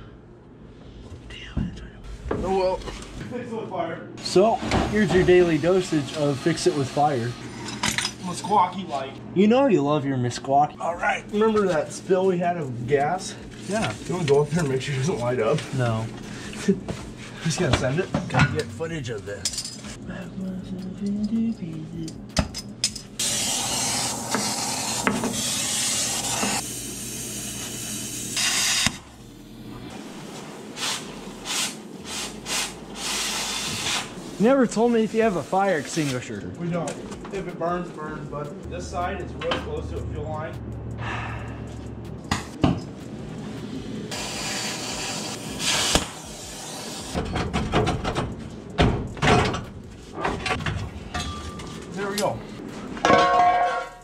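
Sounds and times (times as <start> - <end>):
cutting torch flame hissing: 5.3 - 7.6, 23.2 - 34.6, 44.1 - 47.2
knocks and clatter: 47.2 - 51.6.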